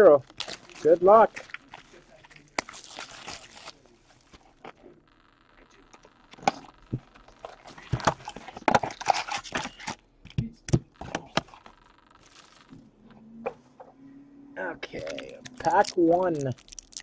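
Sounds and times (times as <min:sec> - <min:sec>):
wrappers crinkling: 0:00.2 - 0:04.8, 0:11.6 - 0:12.7, 0:14.8 - 0:17.0.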